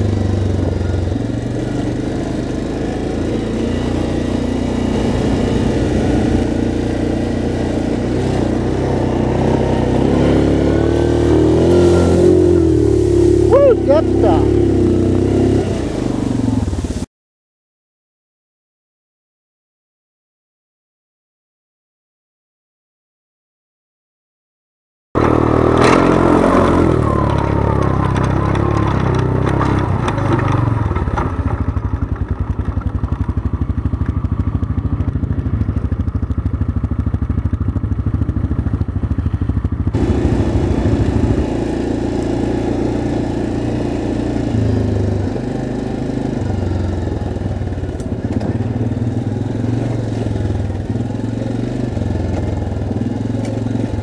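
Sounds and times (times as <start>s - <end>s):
atv engine running: 0.0s - 17.0s, 25.2s - 54.0s
water splashing: 2.4s - 17.1s.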